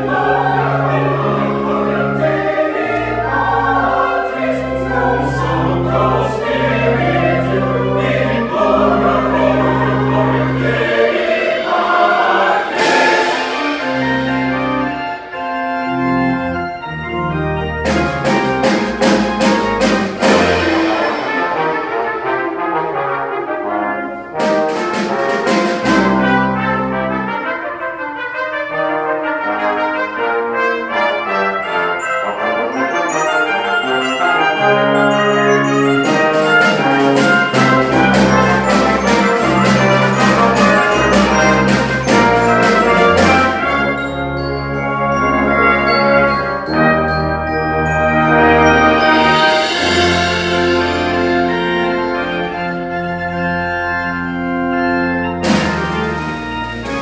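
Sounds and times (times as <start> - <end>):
low tuba notes: 0.0 - 57.0
organ notes: 0.0 - 57.0
trumpet lines: 0.0 - 57.0
cymbal crashes: 11.5 - 15.3, 20.2 - 22.6.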